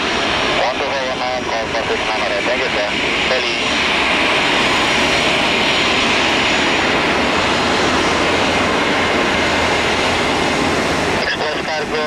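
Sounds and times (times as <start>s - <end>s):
jet engines hissing: 0.0s - 12.0s.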